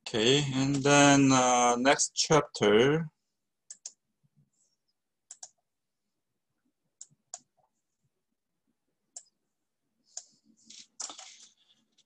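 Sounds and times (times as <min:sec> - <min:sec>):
computer mouse clicking: 0:03.7 - 0:04.0, 0:05.3 - 0:05.6, 0:09.1 - 0:09.4.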